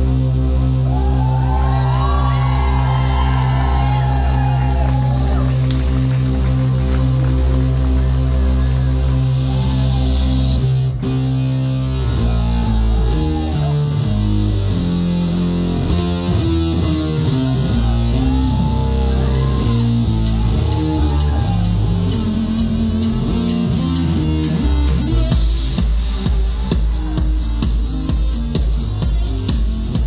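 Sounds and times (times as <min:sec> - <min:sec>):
heavy synth bass line: 0:00.0 - 0:30.0
drum and cymbal hits: 0:25.2 - 0:30.0.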